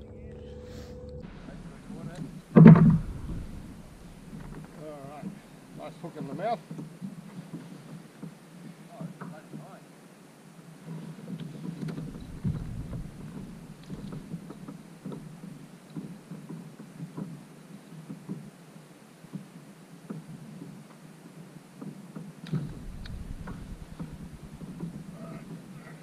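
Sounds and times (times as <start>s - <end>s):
loud bump: 0.0s - 4.8s, 12.0s - 14.4s, 22.6s - 25.7s
water lapping against kayak hull: 1.6s - 5.8s, 11.5s - 16.4s, 22.5s - 26.0s.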